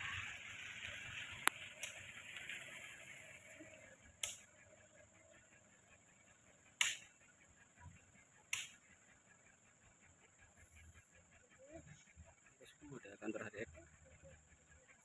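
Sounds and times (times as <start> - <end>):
sharp clicks: 4.2 - 4.5, 6.8 - 7.1, 8.5 - 8.8.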